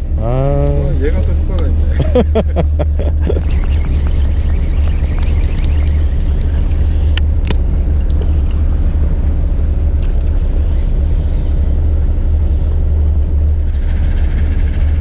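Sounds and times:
boat engine idling: 0:00.0 - 0:15.0.

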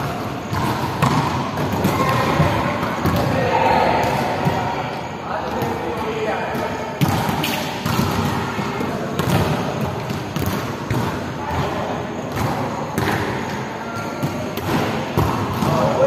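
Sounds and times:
volleyball thuds echoing: 0:00.4 - 0:04.7, 0:06.6 - 0:11.7.

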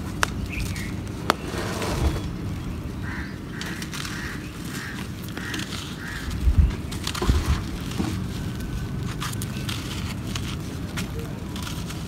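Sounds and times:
bird calling: 0:00.2 - 0:09.9
soil clods crunching in hands: 0:03.6 - 0:12.0.

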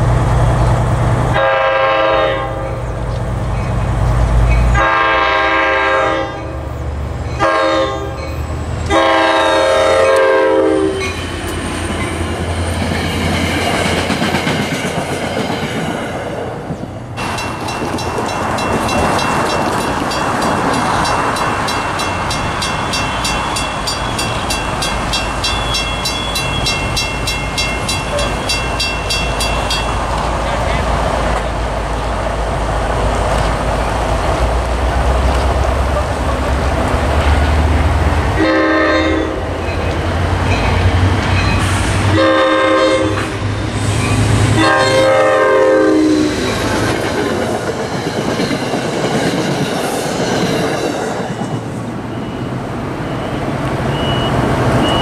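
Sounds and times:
train air horn blasts: 0:01.4 - 0:02.8, 0:04.7 - 0:06.7, 0:07.4 - 0:08.3, 0:08.9 - 0:11.2, 0:38.4 - 0:39.5, 0:42.0 - 0:43.6, 0:44.5 - 0:46.4
train wheels clattering on rails: 0:10.9 - 0:32.2, 0:39.6 - 0:42.2, 0:46.2 - 0:55.0.

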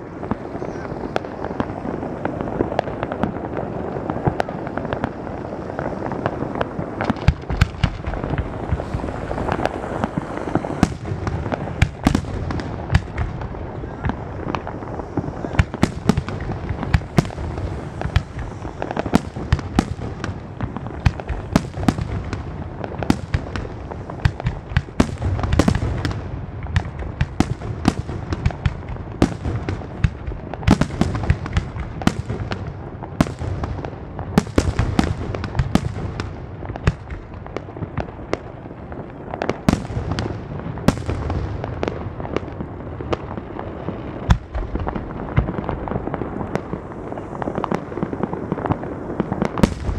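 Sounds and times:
fireworks rumble and crackle: 0:00.0 - 0:49.9
firework shells bursting: 0:06.3 - 0:26.2.

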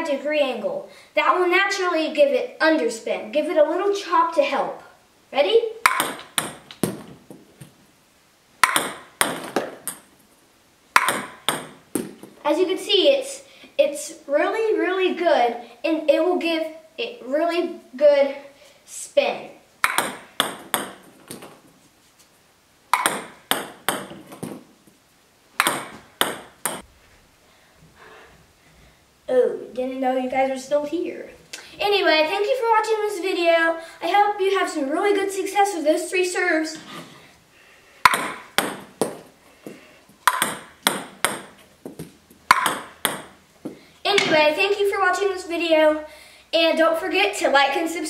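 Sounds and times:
ping-pong ball bouncing on table: 0:05.8 - 0:07.0, 0:08.6 - 0:10.1, 0:11.0 - 0:12.1, 0:19.8 - 0:21.5, 0:22.9 - 0:24.6, 0:25.6 - 0:26.8, 0:38.0 - 0:39.2, 0:40.3 - 0:43.4
paddle striking ping-pong ball: 0:05.8 - 0:07.1, 0:08.6 - 0:10.1, 0:11.0 - 0:12.2, 0:19.8 - 0:21.5, 0:22.9 - 0:24.6, 0:25.6 - 0:26.8, 0:38.0 - 0:39.2, 0:40.2 - 0:43.4.

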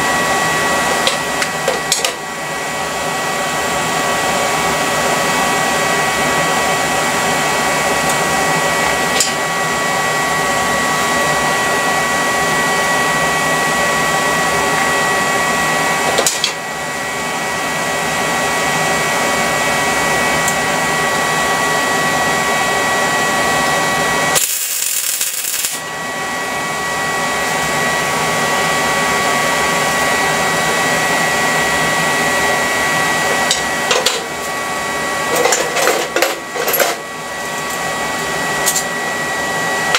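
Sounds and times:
fan whirring with high whine: 0:00.0 - 0:39.9
loud hiss: 0:24.4 - 0:25.8.

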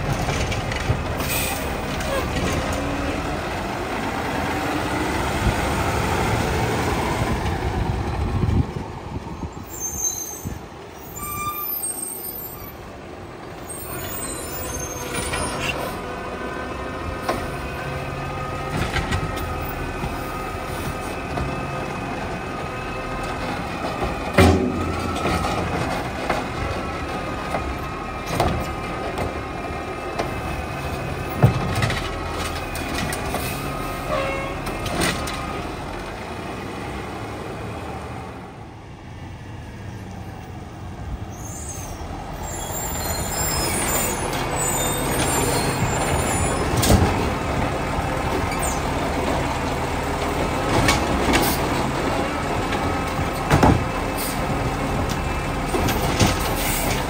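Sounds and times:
garbage truck diesel engine: 0:00.0 - 0:57.0.

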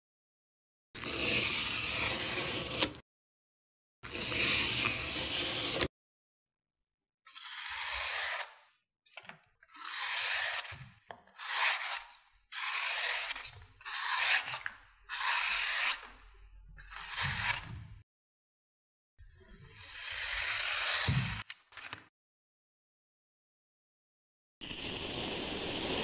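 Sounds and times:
blade scraping through sand: 0:01.0 - 0:03.0, 0:07.3 - 0:08.7, 0:09.7 - 0:16.2, 0:19.7 - 0:21.5, 0:24.6 - 0:26.0.

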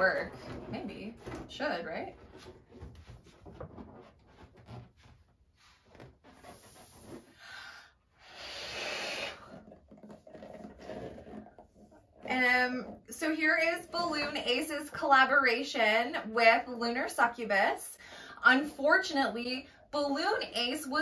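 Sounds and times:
hands rubbing balloon squeaks: 0:00.0 - 0:07.6, 0:08.2 - 0:14.4.

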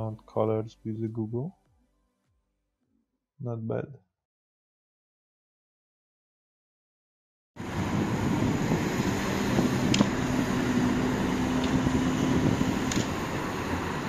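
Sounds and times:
cars on road: 0:07.6 - 0:14.0
low engine drone: 0:07.6 - 0:14.0.

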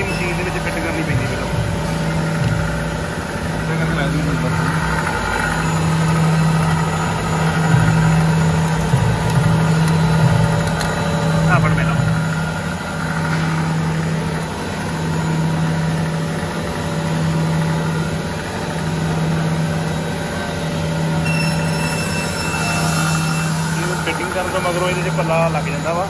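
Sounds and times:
machine motor hum: 0:00.0 - 0:26.0
faint high whine: 0:21.1 - 0:26.0.

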